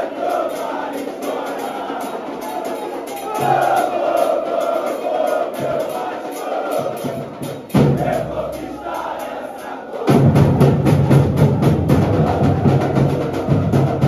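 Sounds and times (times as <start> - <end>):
crowd chanting: 0.0 - 14.0
deep drums: 6.8 - 9.0, 10.1 - 14.0.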